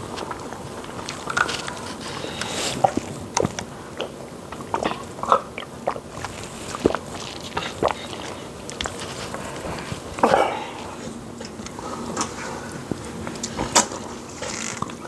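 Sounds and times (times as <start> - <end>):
chewing mouth sounds: 0.0 - 11.6.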